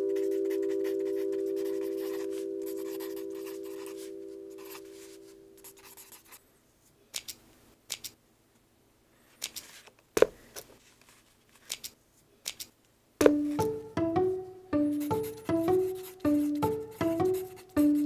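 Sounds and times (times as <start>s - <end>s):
held musical chord: 0.0s - 5.4s, 13.3s - 18.0s
pencil writing on paper: 0.0s - 6.4s, 14.9s - 18.0s
pencil tap: 13.2s - 13.8s.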